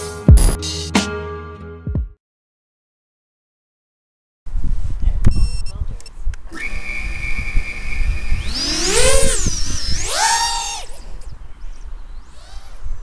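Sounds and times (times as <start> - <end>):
quadcopter motors whining: 6.5 - 13.0.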